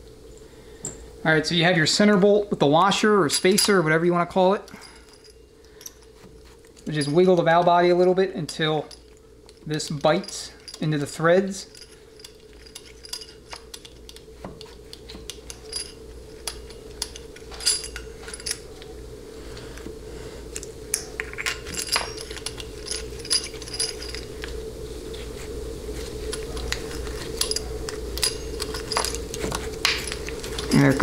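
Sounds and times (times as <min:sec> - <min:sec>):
steady low hum: 0:00.0 - 0:31.0
light metallic clicks and clinks: 0:03.2 - 0:18.9, 0:20.5 - 0:24.6, 0:26.3 - 0:31.0.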